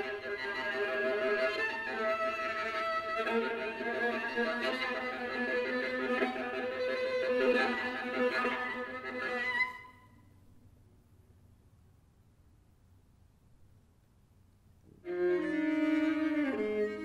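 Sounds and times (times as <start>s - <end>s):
bowed viola playing: 0.0s - 10.2s, 15.0s - 17.0s.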